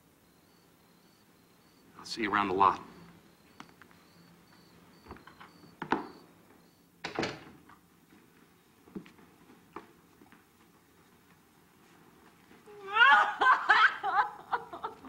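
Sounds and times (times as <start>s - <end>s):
door knocking shut: 7.0s - 7.5s.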